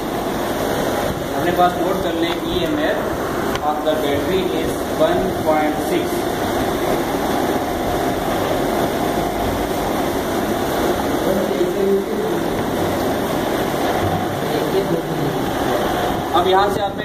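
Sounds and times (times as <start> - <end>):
air conditioner hum: 0.0 - 17.0.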